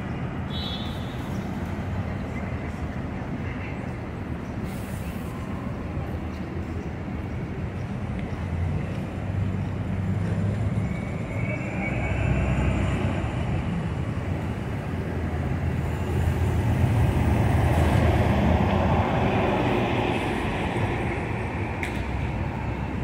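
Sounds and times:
street traffic: 0:00.0 - 0:23.0
bus engine passing: 0:01.4 - 0:23.0.

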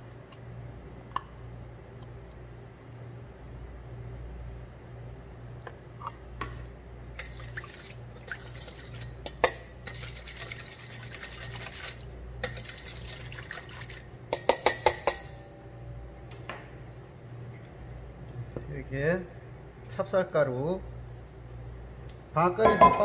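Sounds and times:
whisk scraping in metal bowl: 0:09.8 - 0:14.0
whisk knocking against bowl: 0:14.3 - 0:15.3.

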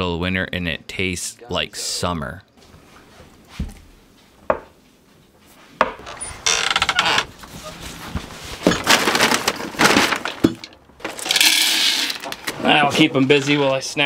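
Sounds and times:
objects scraping: 0:06.0 - 0:12.7
plastic bag rustling: 0:06.3 - 0:11.4
objects knocking: 0:08.1 - 0:12.4.

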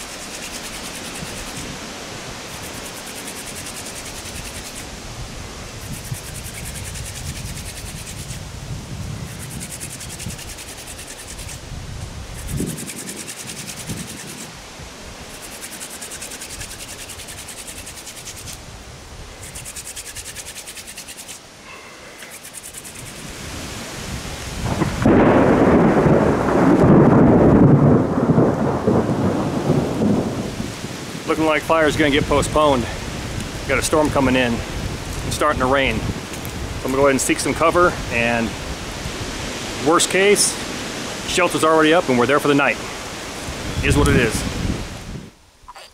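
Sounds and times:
wooden spindle rubbing and hissing: 0:00.0 - 0:01.8, 0:02.4 - 0:05.0, 0:05.7 - 0:08.6, 0:09.2 - 0:14.6, 0:15.2 - 0:18.6, 0:19.3 - 0:23.4
rain: 0:00.0 - 0:45.7
thunder rumbling: 0:24.5 - 0:38.7.

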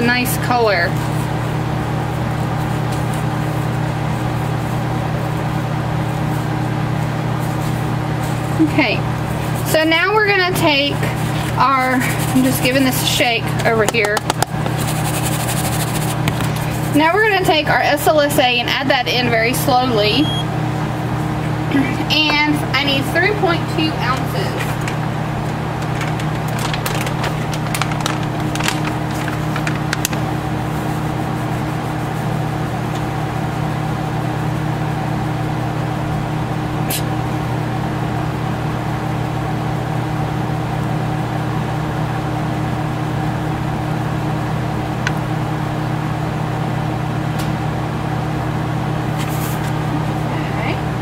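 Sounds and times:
steady mechanical hum: 0:00.0 - 0:51.0
plastic bag crinkling: 0:25.5 - 0:30.4.

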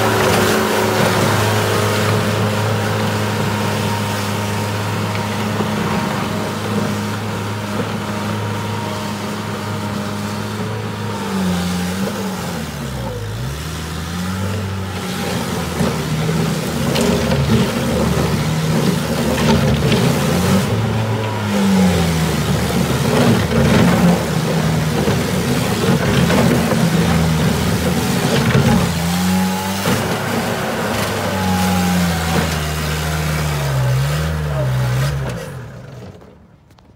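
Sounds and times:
diesel engine working: 0:00.0 - 0:36.9.

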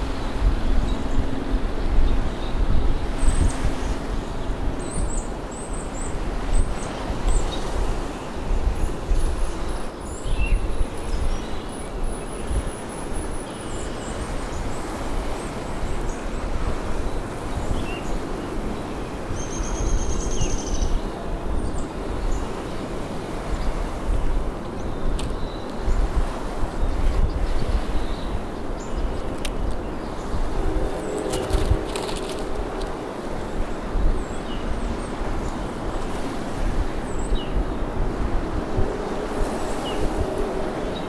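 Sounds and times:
birds chirping: 0:00.0 - 0:35.8
rushing noise with low rumble: 0:29.2 - 0:34.3.

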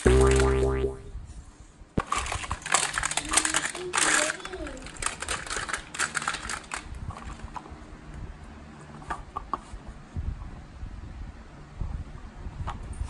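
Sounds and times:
plastic toys clattering in basket: 0:02.0 - 0:07.7.

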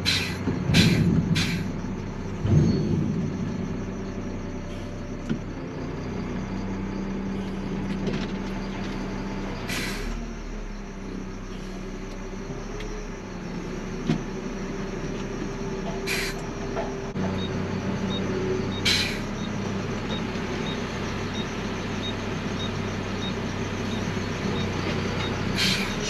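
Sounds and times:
air hissing: 0:00.0 - 0:01.8, 0:16.1 - 0:16.4, 0:25.6 - 0:26.0
diesel engine running: 0:00.0 - 0:26.0.

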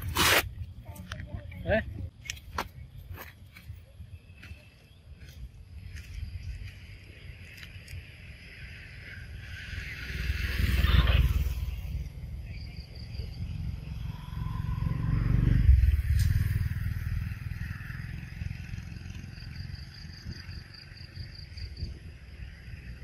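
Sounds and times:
insect chirping: 0:02.8 - 0:23.0
passing motor vehicle rumble: 0:06.8 - 0:23.0.

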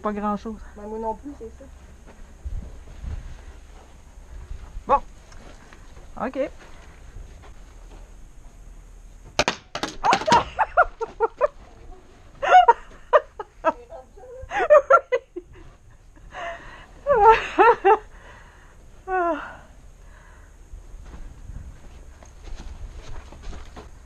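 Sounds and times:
paintball gun cracks: 0:09.4 - 0:10.5.

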